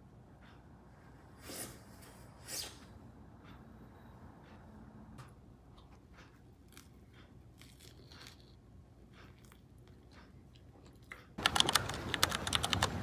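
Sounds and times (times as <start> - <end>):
crunching and chewing: 6.2 - 12.1.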